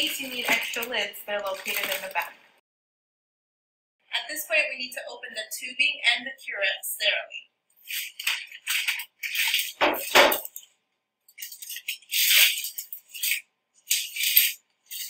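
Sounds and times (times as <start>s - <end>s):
plastic packaging crinkling: 0.0s - 2.4s, 7.9s - 10.7s, 11.4s - 15.0s.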